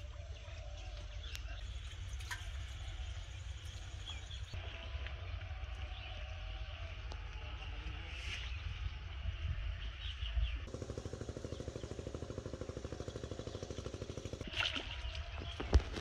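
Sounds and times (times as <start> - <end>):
low outdoor rumble: 0.0 - 16.0
small engine running: 10.6 - 16.0
water splashing: 14.2 - 16.0.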